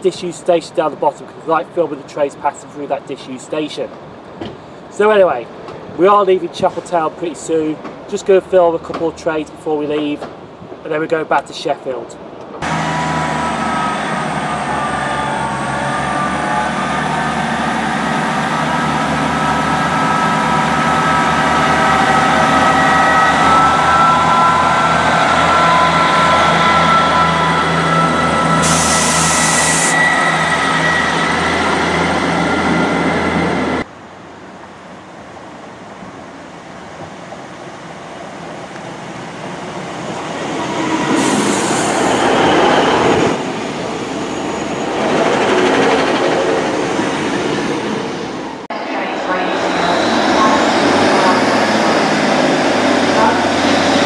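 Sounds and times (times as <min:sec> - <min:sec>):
diesel train engine running: 0:12.6 - 0:54.0
air hiss: 0:28.6 - 0:30.0.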